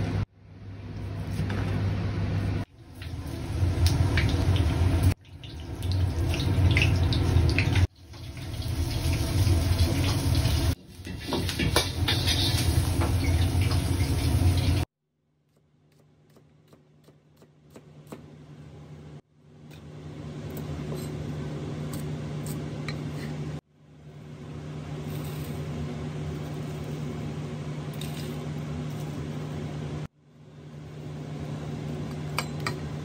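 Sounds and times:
gas burner roaring: 1.3 - 5.2, 5.8 - 14.9
chicken sizzling in a wok: 2.8 - 14.9
knife on cutting board: 20.5 - 21.2.

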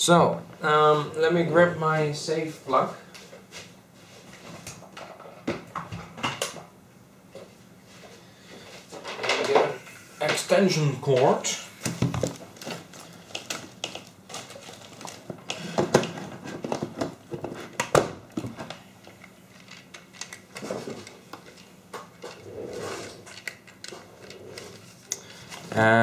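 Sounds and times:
clicks and rustles of handling: 11.1 - 25.8.

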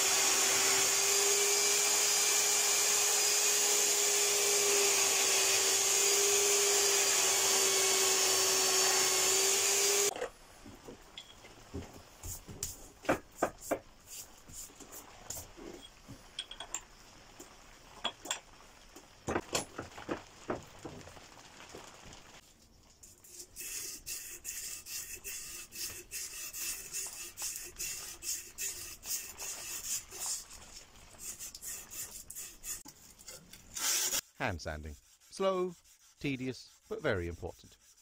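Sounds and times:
tools clicking and knocking: 16.3 - 16.9
sandpaper rubbing on steel blade: 23.1 - 38.0.

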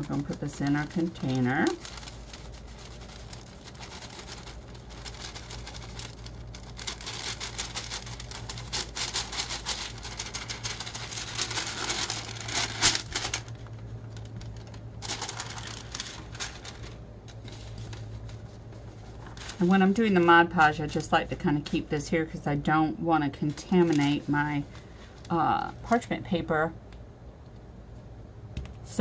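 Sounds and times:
glitter pattering off paper: 0.0 - 21.9, 23.4 - 26.0
paper rustling and crinkling: 0.0 - 21.9, 23.3 - 26.0
low hum: 0.0 - 29.0.

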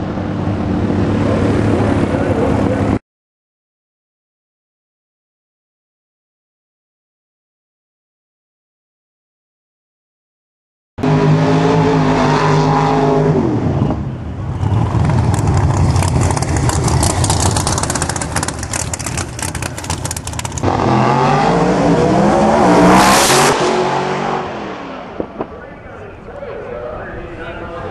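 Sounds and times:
drag car engine revving: 11.0 - 25.6.

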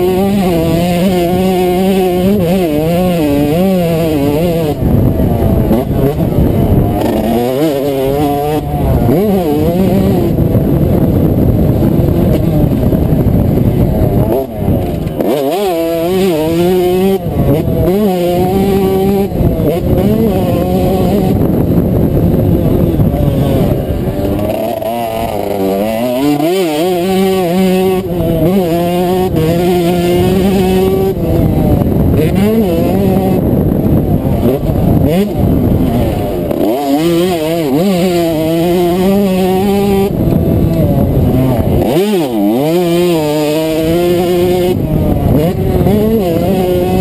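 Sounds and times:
motocross bike engine revving: 0.0 - 47.0
wind buffeting microphone: 0.0 - 47.0.

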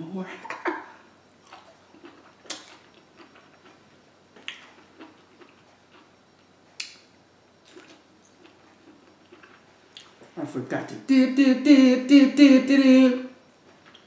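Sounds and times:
quiet chewing: 1.3 - 3.8, 4.4 - 7.0, 7.6 - 10.4.

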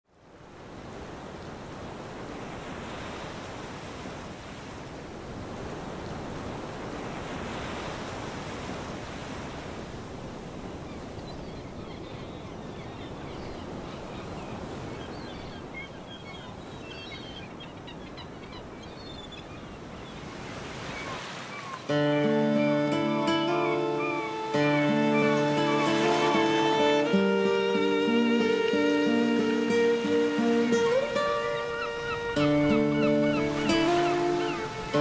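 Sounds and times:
waves rushing on shore: 0.2 - 16.7, 19.8 - 35.0.

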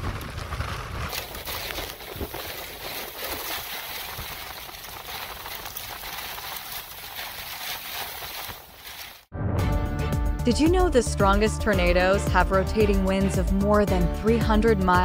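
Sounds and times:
strong wind and rain rushing: 0.0 - 9.1.

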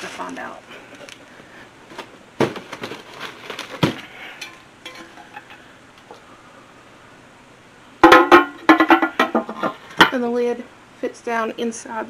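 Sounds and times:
metal pan knocks: 8.0 - 10.2.

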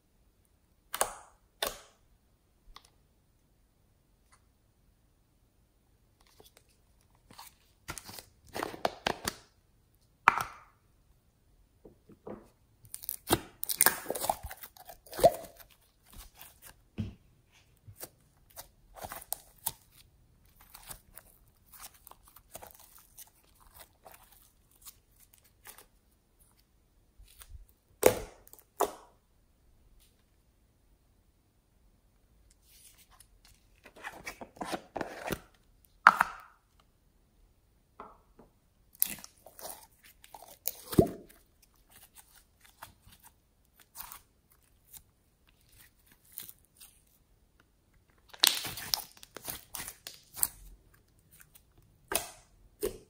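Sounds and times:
slime crackling and tearing: 12.8 - 16.7, 18.4 - 25.9, 38.9 - 45.0, 48.2 - 52.4.

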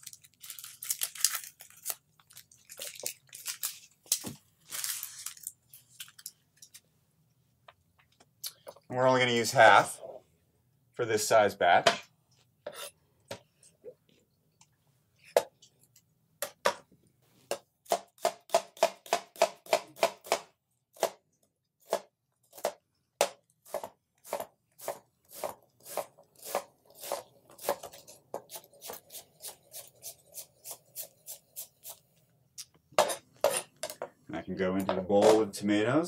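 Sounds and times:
knife chopping onion on board: 17.5 - 21.2.

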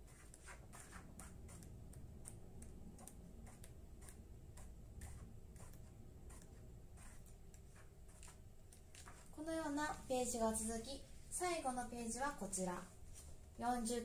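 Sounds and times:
paper pages flipping: 7.8 - 9.3.

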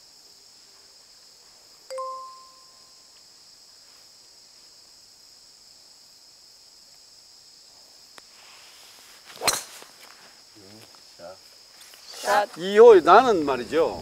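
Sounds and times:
high-pitched insect chorus: 0.0 - 14.0
golf club striking ball: 9.4 - 9.8.

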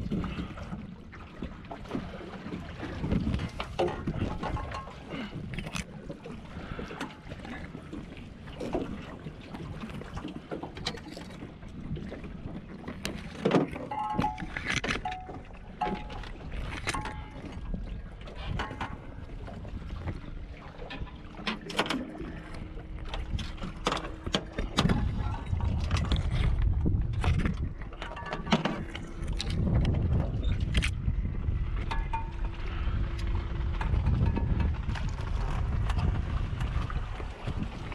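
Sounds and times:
knocks and clicks of gear handled: 13.0 - 17.5
low rumble: 22.2 - 37.9.

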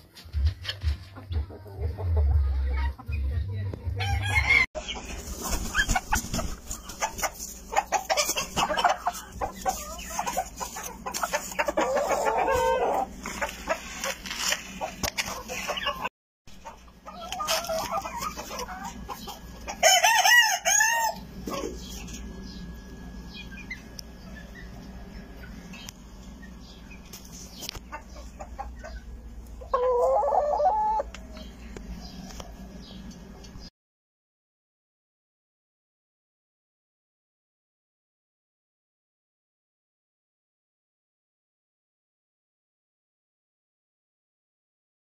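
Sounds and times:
chickens clucking: 0.0 - 33.7
rooster crowing: 4.0 - 4.7, 19.8 - 21.2.

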